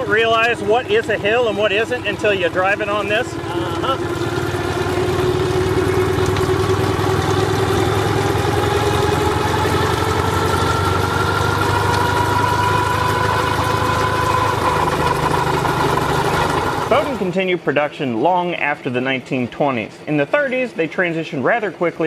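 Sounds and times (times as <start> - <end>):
rising whine: 0.0 - 17.3
steam engine running: 0.0 - 17.3.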